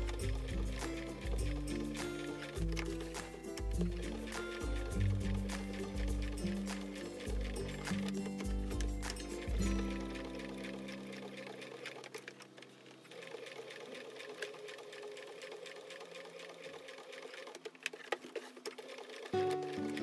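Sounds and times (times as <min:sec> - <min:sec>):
background music: 0:00.0 - 0:17.4, 0:19.2 - 0:20.0
sewing machine stitching: 0:00.0 - 0:20.0.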